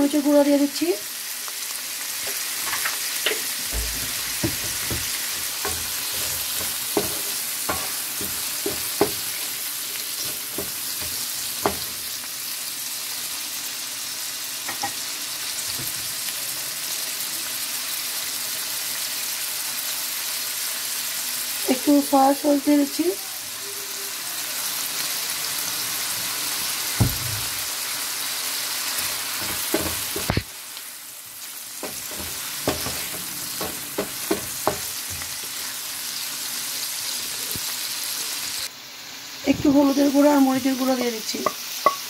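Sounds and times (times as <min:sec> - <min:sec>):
food sizzling in hot oil: 0:00.0 - 0:42.0
wooden spatula scraping a pan: 0:02.2 - 0:11.9, 0:28.9 - 0:30.5, 0:31.8 - 0:35.8.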